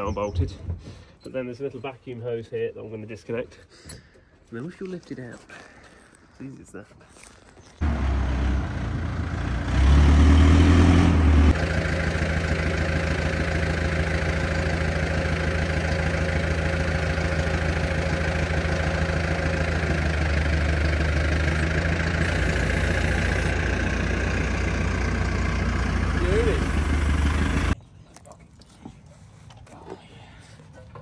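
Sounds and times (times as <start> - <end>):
diesel engine idling: 7.8 - 27.8.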